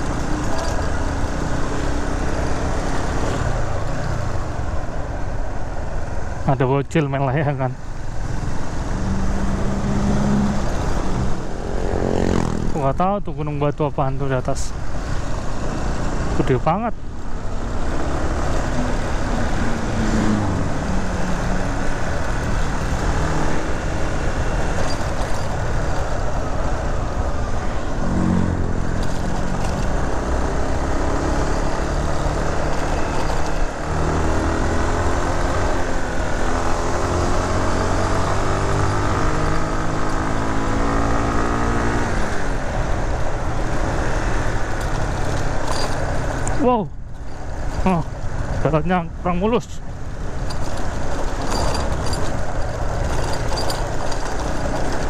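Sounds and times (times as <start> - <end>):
wind and road noise: 0.0 - 55.0
vehicle engine revving: 8.3 - 12.8, 17.4 - 46.6.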